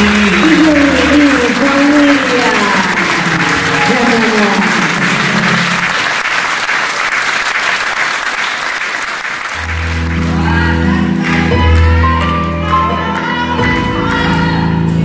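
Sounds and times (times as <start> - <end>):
audience applauding: 0.0 - 15.0
music with slow sustained chords: 9.6 - 15.0.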